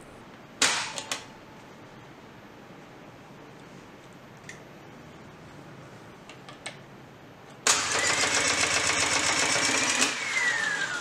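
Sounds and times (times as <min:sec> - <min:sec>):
motor whining: 0:09.5 - 0:11.0.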